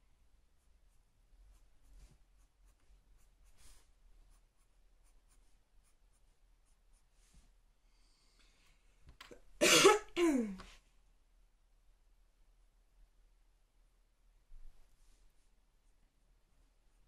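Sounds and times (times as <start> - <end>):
marker scratching on paper: 1.5 - 7.1.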